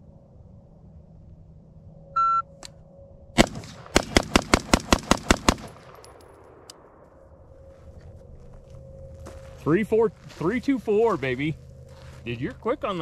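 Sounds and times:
shot timer beep: 2.2 - 2.5
rifle shots rapid fire: 3.4 - 6.0.

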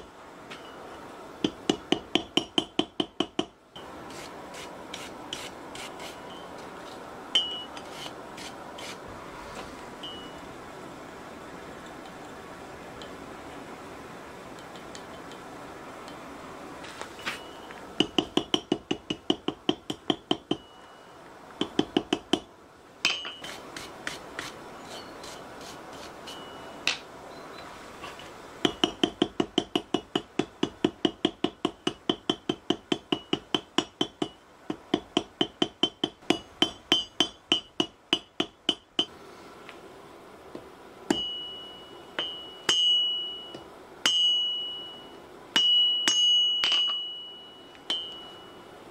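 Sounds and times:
hammer striking hot metal on anvil: 21.6 - 23.5, 28.6 - 39.1, 41.1 - 45.0, 45.6 - 48.2.

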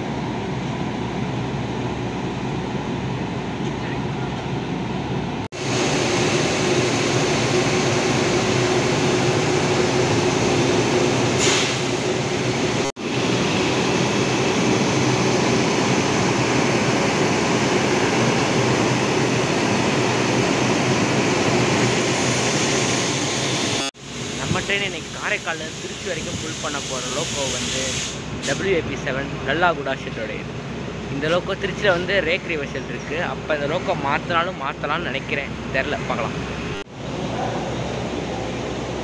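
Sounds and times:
locomotive cooling blowers whirring: 0.0 - 39.0
brief hiss: 11.4 - 11.9, 25.8 - 28.7.

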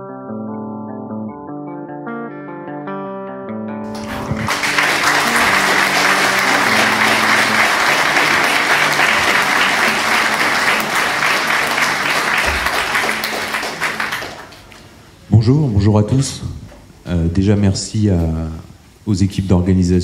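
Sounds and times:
intro music: 3.9 - 14.3
audience applauding: 3.9 - 15.0.

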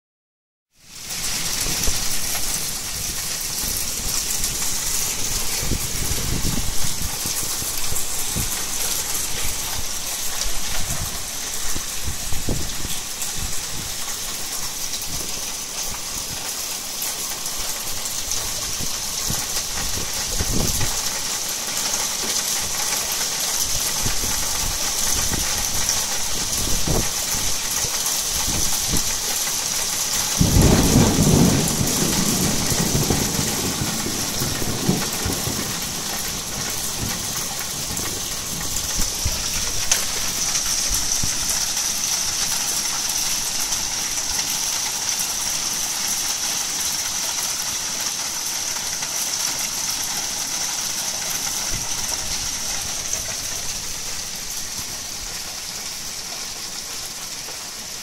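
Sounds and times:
heavy rain pouring: 0.7 - 58.0
low thunder rumbles: 1.6 - 16.5, 17.4 - 21.4, 23.8 - 44.4.

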